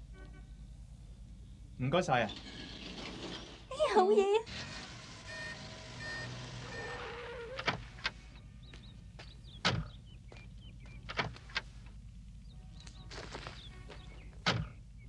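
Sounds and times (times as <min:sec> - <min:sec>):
van doors shutting: 0:04.5 - 0:08.3, 0:09.4 - 0:10.0, 0:10.9 - 0:11.8, 0:13.5 - 0:14.9.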